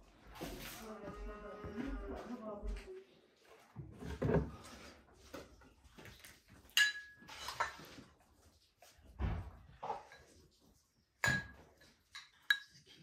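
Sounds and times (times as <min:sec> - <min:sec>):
glass jars clinking on wood: 0:06.7 - 0:07.8, 0:11.2 - 0:12.8.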